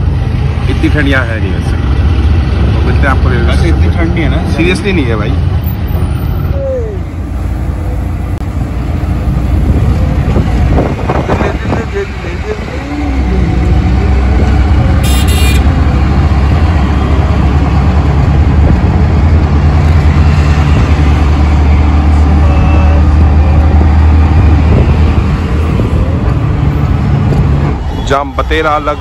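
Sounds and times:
auto-rickshaw engine running: 0.0 - 29.0
road and traffic noise: 0.0 - 29.0
short horn toot: 15.0 - 15.7.

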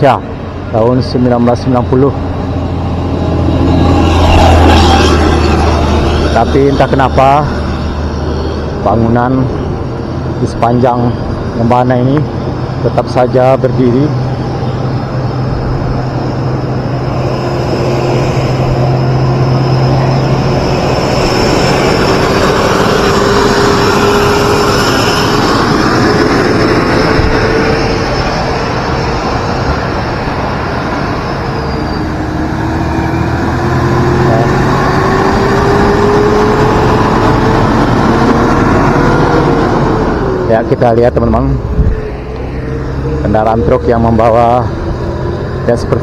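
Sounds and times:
truck passing alongside: 0.0 - 46.0
vehicle engine and road noise: 0.0 - 46.0.

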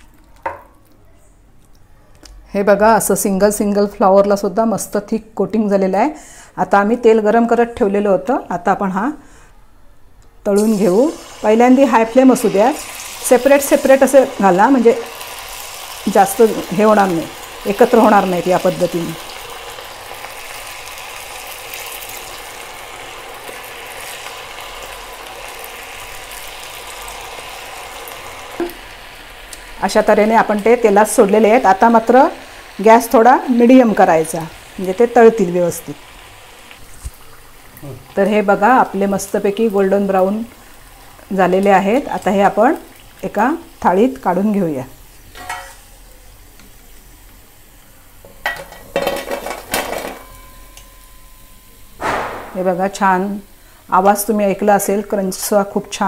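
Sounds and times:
cauliflower deep-frying in oil: 10.6 - 51.2.

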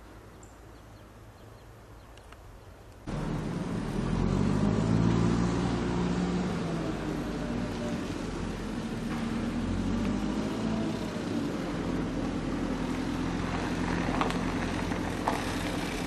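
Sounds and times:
diesel engines running at low revs: 3.0 - 16.0.

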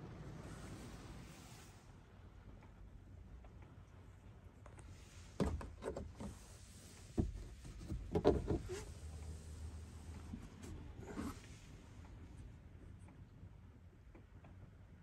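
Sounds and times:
knocks and rustling in car cabin: 5.4 - 9.0.

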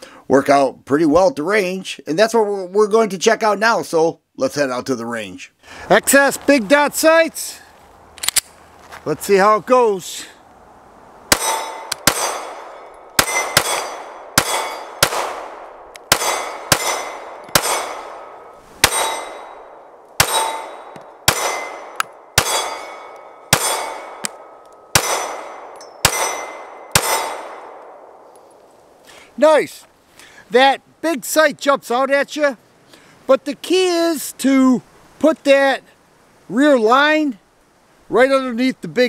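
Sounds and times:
pistol shots: 11.3 - 28.1.

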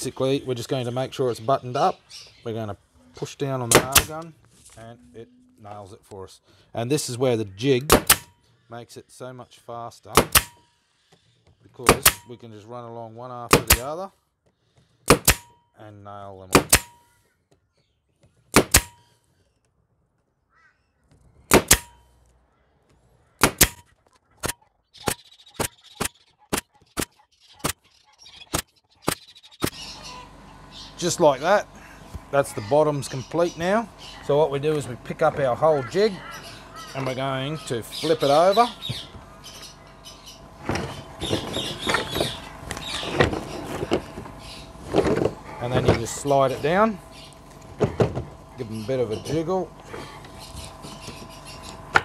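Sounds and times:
air stapler cracks into wood: 3.7 - 4.3, 7.8 - 8.3, 10.1 - 10.6, 11.8 - 12.3, 13.5 - 13.9, 15.1 - 15.6, 16.5 - 17.0, 18.5 - 19.0, 21.5 - 22.0, 23.4 - 24.6
wooden knocks and clatter: 40.6 - 46.2, 47.7 - 48.3.

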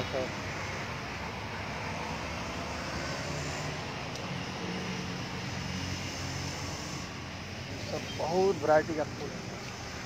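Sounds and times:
constant hiss: 0.0 - 10.0
vehicle engine rumble: 0.0 - 10.0.

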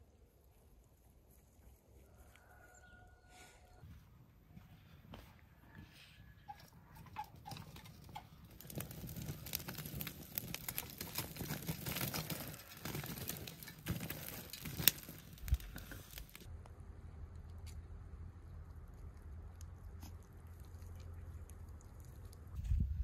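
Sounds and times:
metal shovel scraping: 6.4 - 16.5
ash and embers falling: 7.5 - 16.5.

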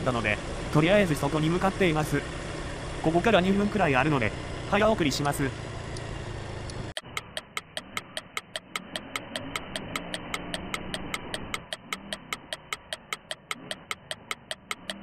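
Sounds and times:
motorcycle engine running: 0.0 - 15.0
road noise: 0.0 - 15.0
rapid clock-like ticking: 6.7 - 15.0.

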